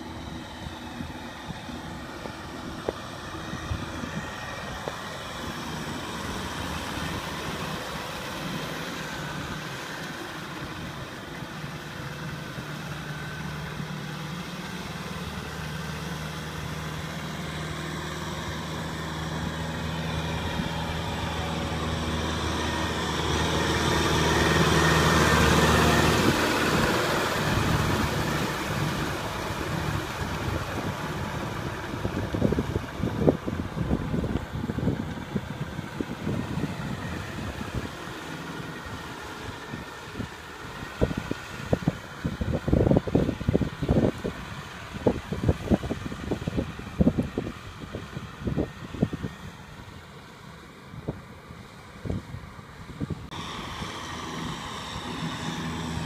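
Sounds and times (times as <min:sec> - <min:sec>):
tiller churning soil: 0:00.0 - 0:56.0
tractor diesel engine running: 0:00.0 - 0:56.0.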